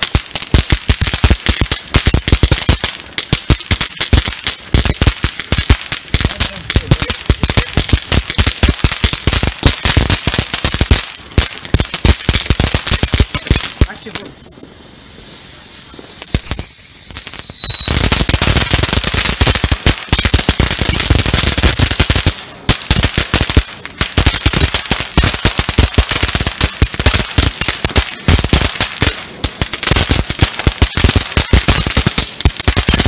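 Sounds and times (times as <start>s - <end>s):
firework sparks crackling: 0.0s - 33.0s
firework whistle: 14.4s - 18.9s, 30.0s - 33.0s.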